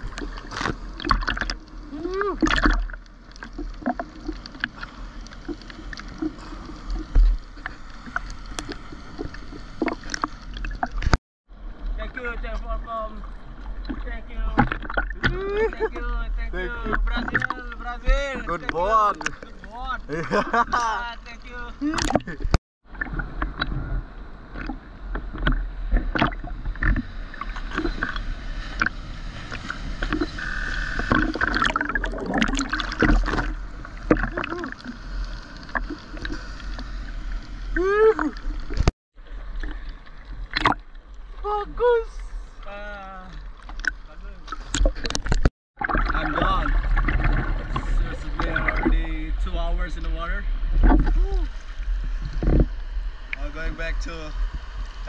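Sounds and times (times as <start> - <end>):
muffled water sloshing: 0.0 - 55.0
small ticks and splashes: 0.2 - 1.7
water sloshing against camera housing: 14.6 - 15.4, 16.8 - 17.8, 43.4 - 48.9.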